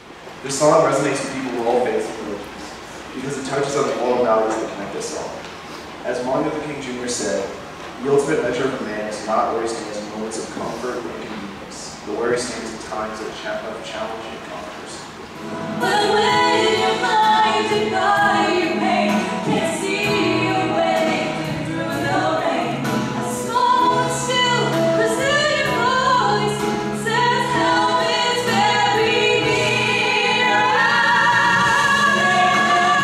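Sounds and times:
young women singing: 0:15.7 - 0:33.0.

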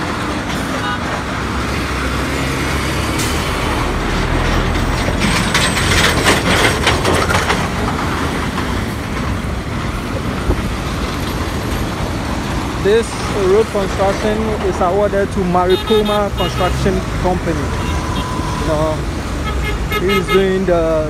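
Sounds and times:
heavy trucks passing: 0:00.0 - 0:21.0
rattling clatter: 0:03.1 - 0:15.6.

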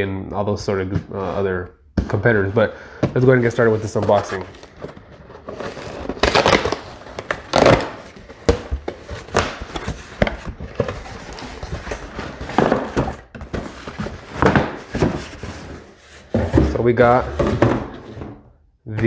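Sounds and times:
cardboard rustling: 0:03.1 - 0:18.1
tape and cardboard ripping: 0:05.3 - 0:11.5.

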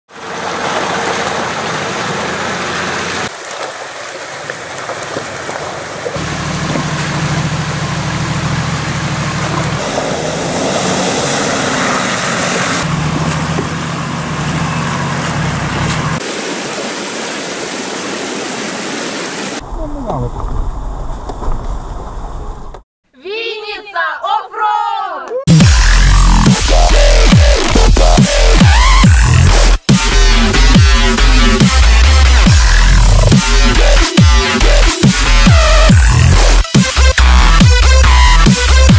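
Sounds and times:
off-road vehicle engines running: 0:00.1 - 0:16.3, 0:25.5 - 0:38.9
rushing stream water: 0:00.1 - 0:19.6.

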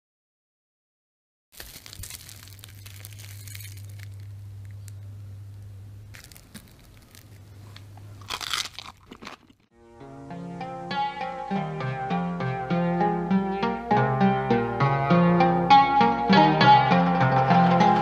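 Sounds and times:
crisp crust crackling and crunching: 0:01.5 - 0:09.7
low steady hum: 0:01.6 - 0:14.7.

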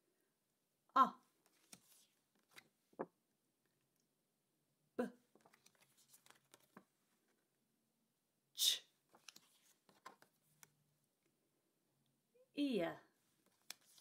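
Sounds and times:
paper flashcards rustling: 0:01.4 - 0:03.1, 0:05.3 - 0:07.4, 0:09.1 - 0:10.7, 0:13.4 - 0:14.0.

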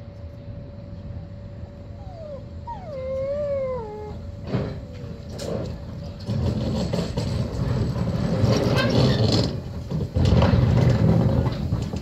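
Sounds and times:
dog whining: 0:02.0 - 0:04.9.

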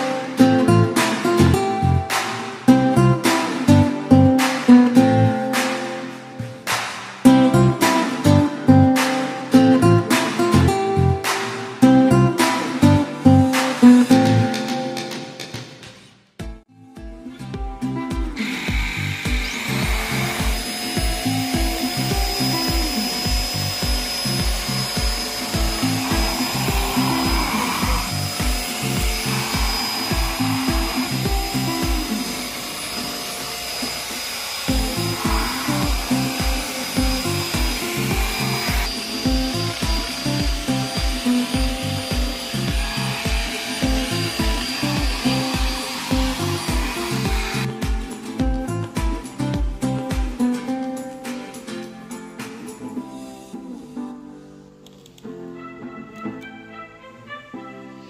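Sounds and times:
music with steady beat: 0:00.0 - 0:54.1
vacuum motor whining: 0:18.4 - 0:47.9.

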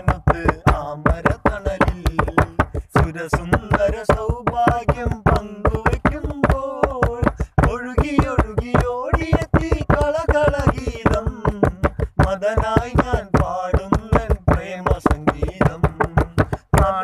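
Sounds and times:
person singing: 0:00.0 - 0:17.0
sharp percussive strikes: 0:00.0 - 0:17.0.

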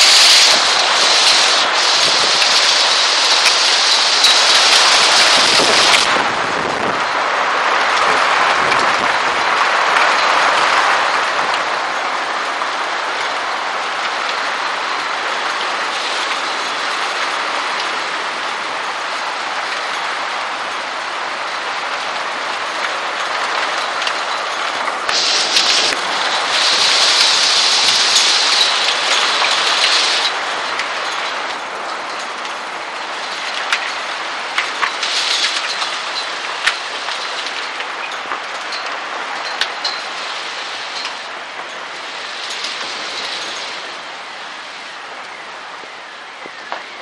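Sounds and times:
hail rattling on surfaces: 0:00.0 - 0:45.2
sharp hailstone impacts: 0:25.1 - 0:30.9.

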